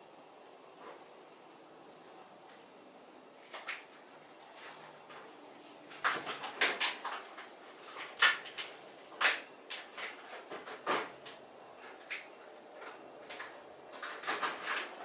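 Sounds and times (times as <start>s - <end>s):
low hiss: 0.0s - 10.3s.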